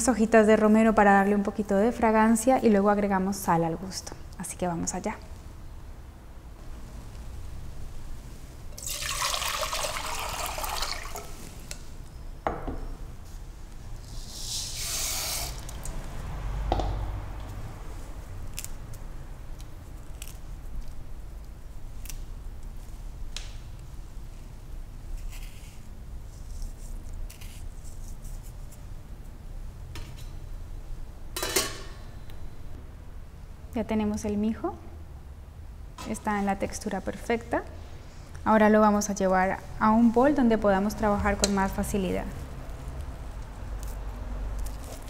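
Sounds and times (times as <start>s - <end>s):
grains pouring into water: 8.8s - 11.4s
water pouring into metal pot: 8.8s - 11.4s
low steady hum: 15.6s - 45.0s.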